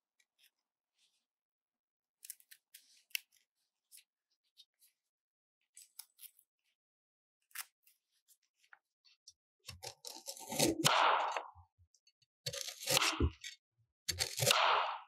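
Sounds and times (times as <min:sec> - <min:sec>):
knife crunching through carrot: 0:09.7 - 0:11.5, 0:12.5 - 0:14.7.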